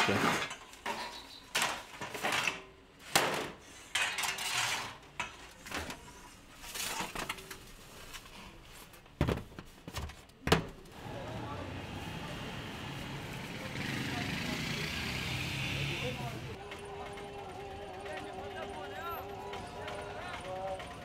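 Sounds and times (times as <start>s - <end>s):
metal rod and trays clanking: 0.0s - 6.2s.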